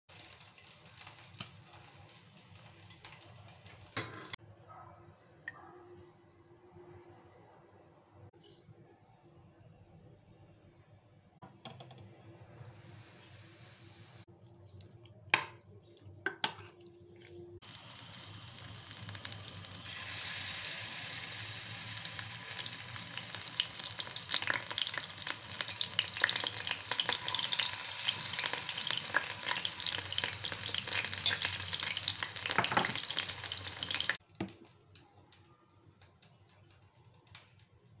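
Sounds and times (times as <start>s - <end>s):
batter sizzling in hot oil: 0.1s - 4.4s, 12.6s - 14.3s, 17.6s - 34.2s.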